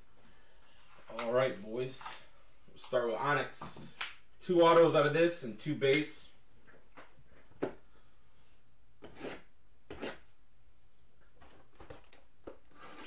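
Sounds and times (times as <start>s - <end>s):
cardboard scraping: 11.7s - 13.0s.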